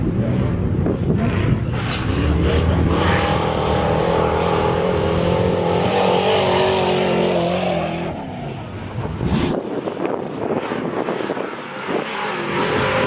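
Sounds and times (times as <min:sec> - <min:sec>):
truck engine revving past: 0:01.2 - 0:09.6.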